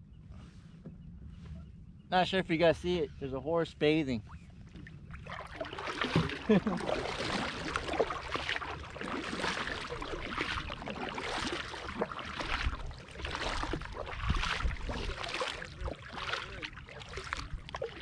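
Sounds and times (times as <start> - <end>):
kayak paddle splashing: 4.2 - 18.0.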